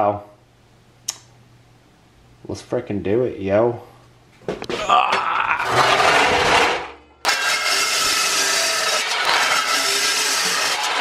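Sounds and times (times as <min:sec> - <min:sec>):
chop saw cutting steel tube: 0:05.7 - 0:11.0.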